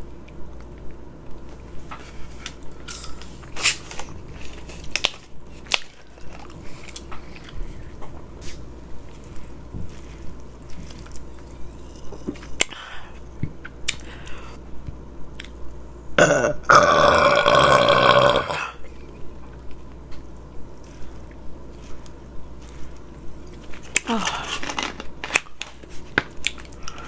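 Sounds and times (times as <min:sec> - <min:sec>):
woman burping loudly: 0:16.2 - 0:18.8.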